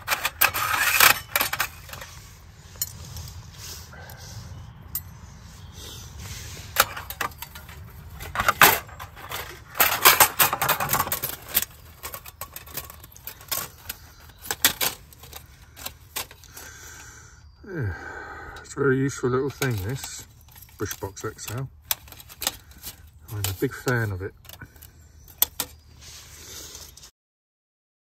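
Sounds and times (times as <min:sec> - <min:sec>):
metal plates clinking: 0:00.0 - 0:03.2, 0:06.7 - 0:16.7.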